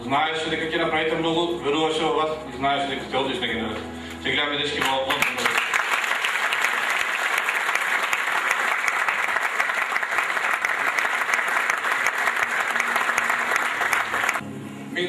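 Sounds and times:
audience applauding: 4.8s - 14.4s.

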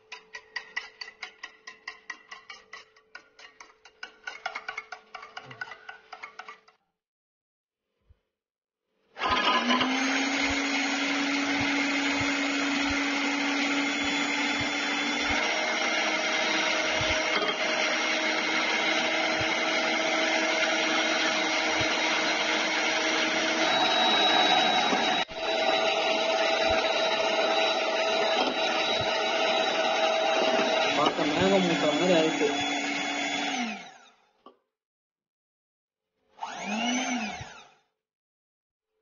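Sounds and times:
electric hand mixer running: 9.2s - 34.2s, 36.4s - 37.8s.

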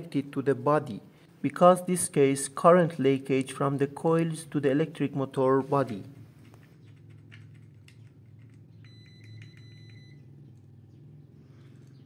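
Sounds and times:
low steady hum: 0.0s - 12.0s
high meter beep: 8.8s - 10.3s.

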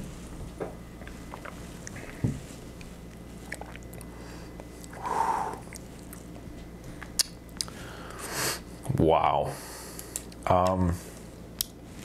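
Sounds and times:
low room hum: 0.0s - 12.0s
mouth sipping and swallowing: 1.0s - 2.2s, 2.8s - 6.4s
small mouth clicks: 4.8s - 6.3s, 7.0s - 7.8s.

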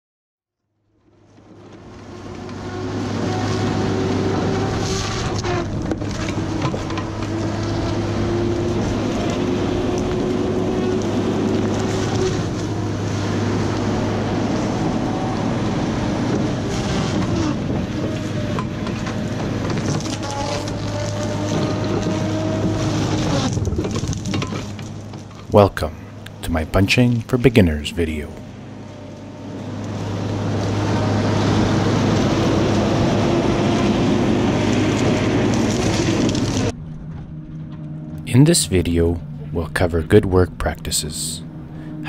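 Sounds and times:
heavy machine engine humming: 1.1s - 42.0s
wood cracking: 18.0s - 25.6s, 34.4s - 37.8s.

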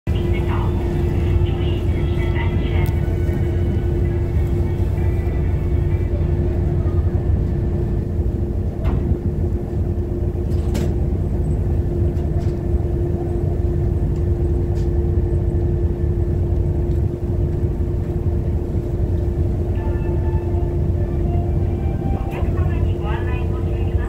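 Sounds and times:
boat engine drone: 0.0s - 24.0s.

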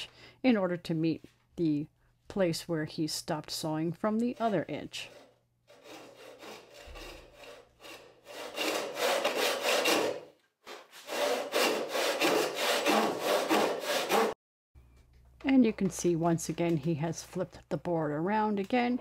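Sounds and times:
hand saw rip strokes: 4.4s - 14.4s.

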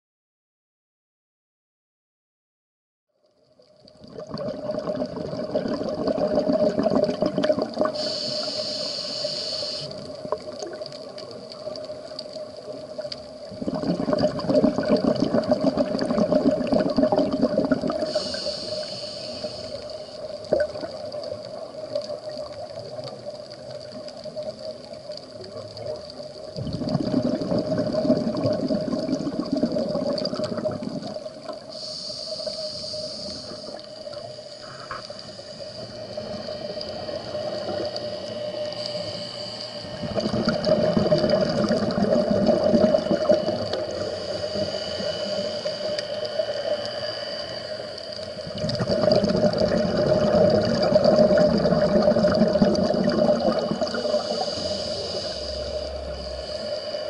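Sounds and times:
faint steady hum: 3.2s - 57.0s
exhaled bubbles crackling underwater: 3.6s - 57.0s
regulator inhalation hiss: 7.7s - 13.4s, 17.6s - 24.9s, 30.3s - 48.7s, 49.6s - 57.0s.

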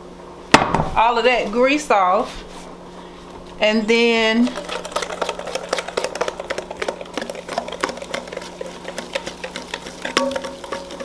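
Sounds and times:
whisk clicking against metal bowl: 4.5s - 11.0s.

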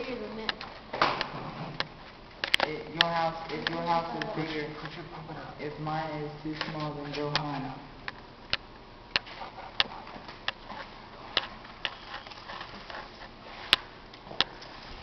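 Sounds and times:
sharp clicks: 0.5s - 5.0s.

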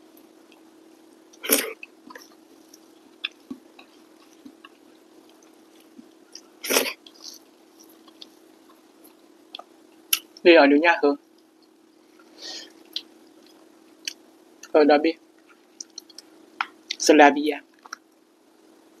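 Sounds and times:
steady low hum: 0.0s - 19.0s
person chewing: 1.3s - 10.4s, 15.4s - 17.0s
loud breathy bursts: 12.3s - 12.8s.

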